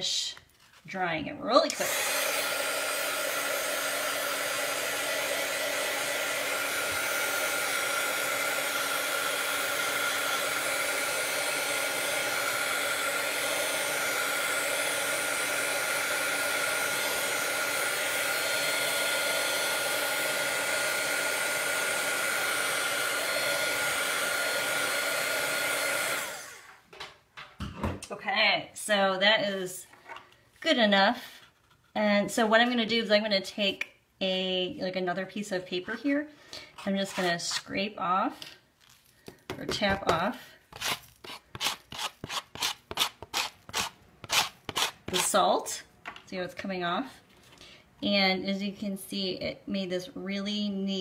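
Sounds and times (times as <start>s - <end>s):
heat gun blowing air: 1.7s - 26.8s, 39.7s - 45.5s.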